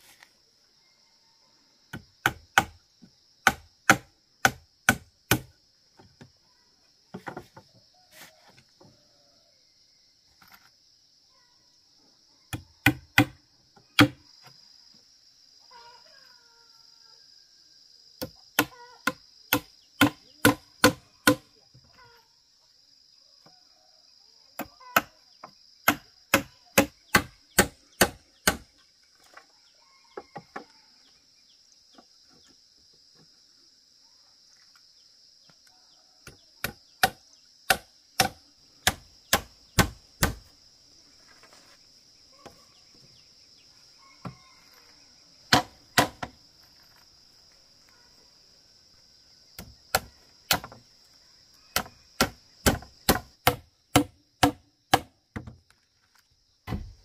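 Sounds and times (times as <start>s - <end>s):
high insect drone: 0.0s - 57.0s
hammer striking bamboo: 2.2s - 2.8s, 3.4s - 5.5s, 12.5s - 13.4s, 14.0s - 14.2s, 18.2s - 21.5s, 25.8s - 28.7s, 36.2s - 40.4s, 45.5s - 46.3s, 49.9s - 50.8s, 51.8s - 55.5s.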